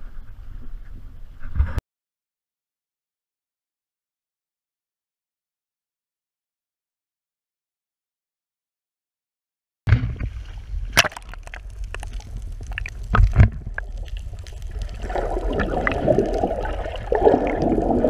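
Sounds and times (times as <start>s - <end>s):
water sloshing and gurgling: 9.9s - 18.0s
bubbling rush of water: 10.1s - 18.0s
sharp clicks and knocks: 11.0s - 13.9s.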